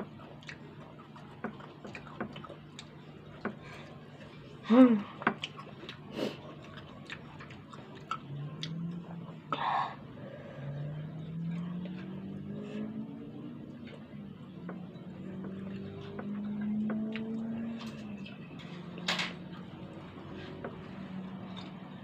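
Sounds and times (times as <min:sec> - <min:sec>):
crunchy chewing: 0:00.0 - 0:09.5.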